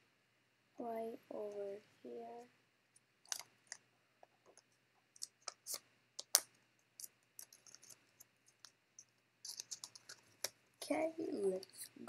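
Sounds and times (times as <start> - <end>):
paper clicks and crackles: 3.3 - 3.8, 4.5 - 10.6.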